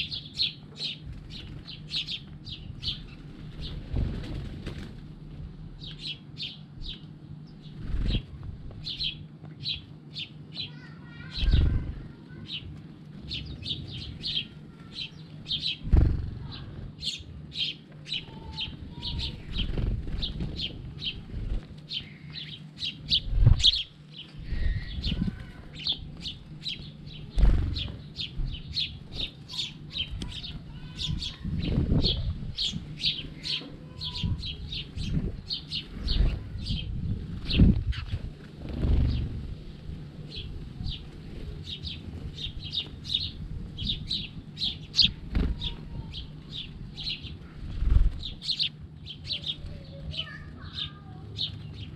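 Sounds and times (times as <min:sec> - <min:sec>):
sparrows chirping: 0:00.0 - 0:51.9
low thumps of wingbeats: 0:15.7 - 0:17.5, 0:24.4 - 0:29.5.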